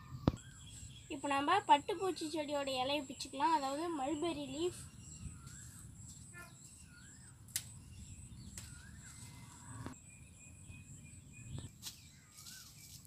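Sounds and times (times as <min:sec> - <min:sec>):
bird whistling: 0:04.7 - 0:07.4.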